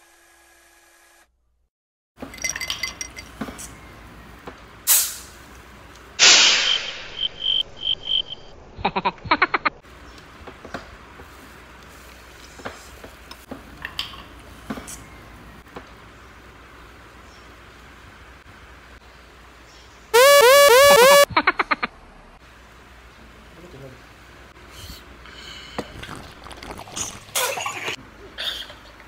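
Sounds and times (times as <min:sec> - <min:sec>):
clinks and clicks of eating seafood: 0:02.2 - 0:03.4
loud sudden sound effect: 0:20.2 - 0:21.3
short beeps: 0:20.2 - 0:21.3.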